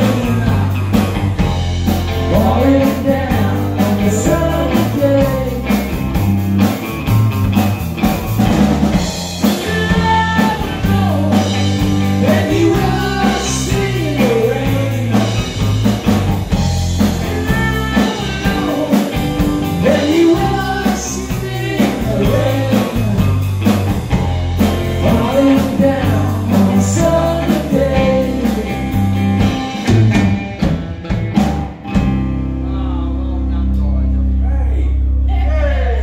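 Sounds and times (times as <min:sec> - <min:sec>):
man singing lead vocals: 0:00.0 - 0:01.4, 0:02.1 - 0:06.1, 0:09.4 - 0:15.8, 0:17.0 - 0:23.7, 0:24.6 - 0:29.3
drums playing hard accents: 0:00.0 - 0:33.2
live rock band playing: 0:00.0 - 0:34.4.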